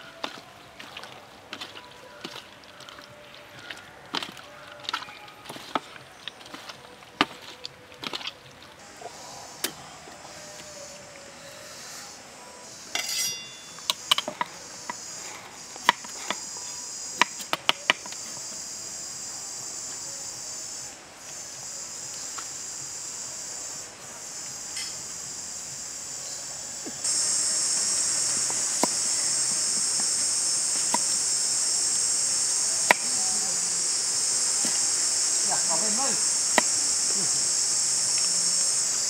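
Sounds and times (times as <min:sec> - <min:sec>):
insects chorus: 0:08.8 - 0:39.0.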